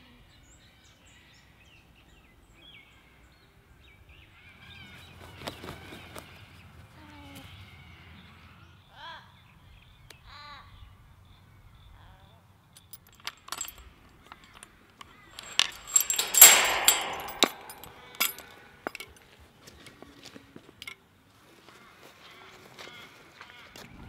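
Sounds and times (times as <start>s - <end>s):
gate chain rattling: 12.8s - 19.1s.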